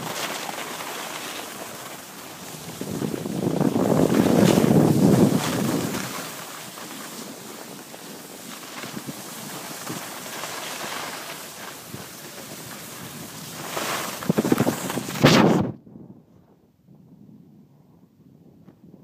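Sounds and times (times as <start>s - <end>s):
skis scraping packed snow: 0.0s - 15.7s
wind rushing over microphone: 2.3s - 6.5s, 11.6s - 19.0s.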